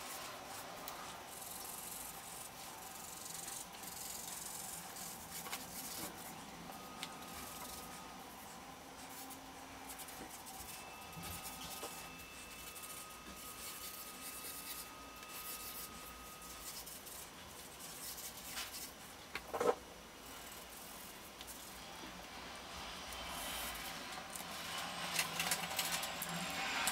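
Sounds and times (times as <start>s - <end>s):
marker scratching on paper: 1.3s - 6.3s, 9.0s - 18.9s.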